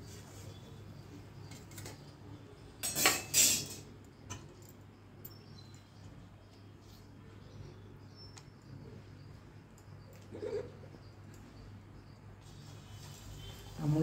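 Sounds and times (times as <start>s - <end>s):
steel kitchen utensils clattering: 2.8s - 4.8s.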